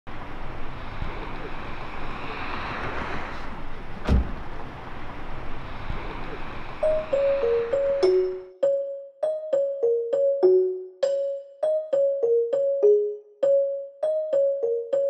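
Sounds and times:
car passing: 0.1s - 8.4s
car door thud: 4.0s - 4.4s.

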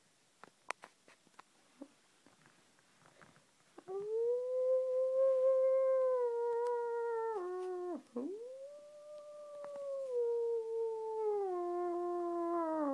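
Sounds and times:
dog-style howling: 3.9s - 12.9s.

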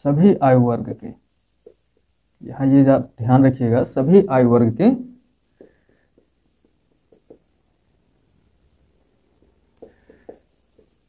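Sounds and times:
marker writing on whiteboard: 1.6s - 2.2s, 5.5s - 7.7s, 9.3s - 11.0s.

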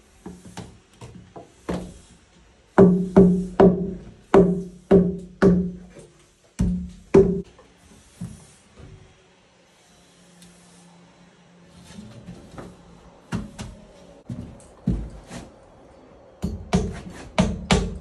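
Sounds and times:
hammer striking a log: 2.8s - 5.8s.

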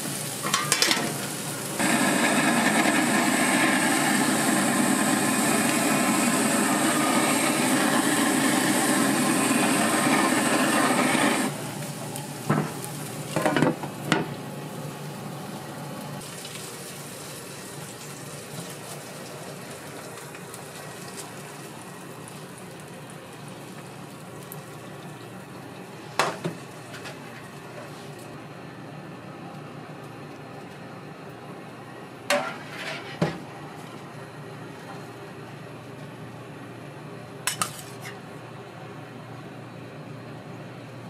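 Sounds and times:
low frying sizzle: 0.0s - 41.0s
metal utensils clinking on pans: 0.4s - 1.2s, 37.5s - 38.2s.

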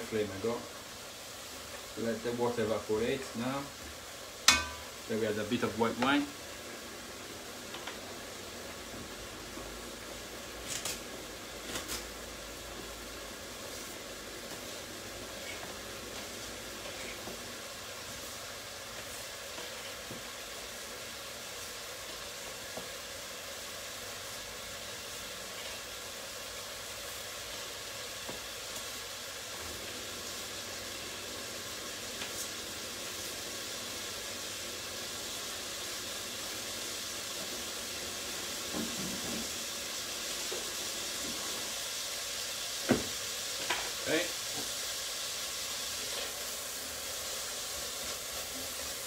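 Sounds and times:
food sizzling in a pan: 0.0s - 49.0s.

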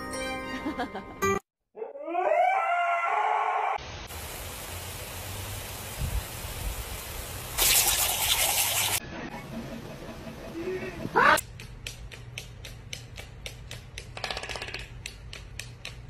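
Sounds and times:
dog howling: 1.8s - 3.8s
water hissing from sprinkler: 3.8s - 9.0s.

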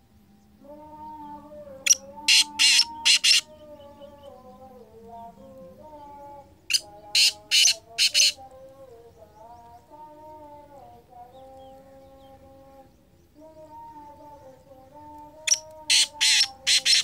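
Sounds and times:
bird calling harsh notes: 1.9s - 3.6s, 6.7s - 8.4s, 15.5s - 17.0s.

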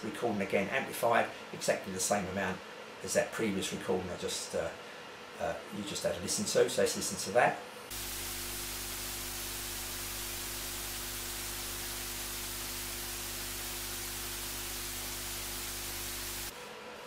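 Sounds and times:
tape hiss: 7.9s - 16.7s.

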